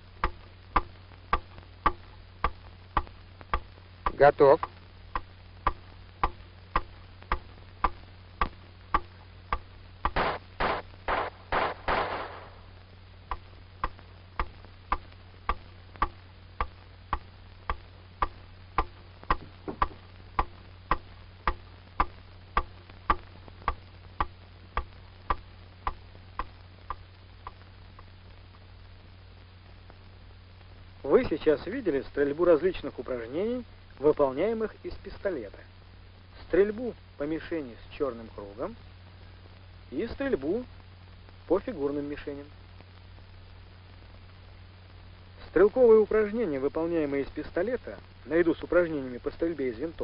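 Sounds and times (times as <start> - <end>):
steady ticking: 0.0 - 28.1.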